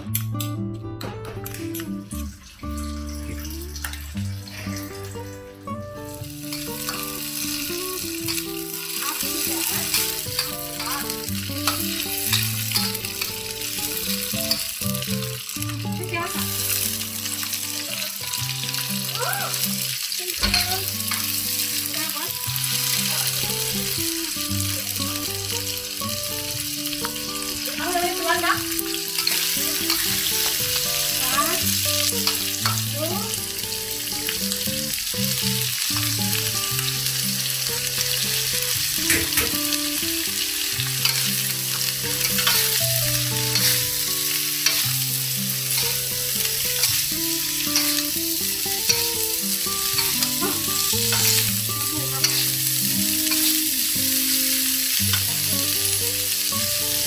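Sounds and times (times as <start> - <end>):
stir-fry sizzling in a wok: 1.3 - 57.0
metal spatula scraping a pan: 29.1 - 32.8, 41.0 - 44.8, 47.8 - 48.1, 49.9 - 53.6.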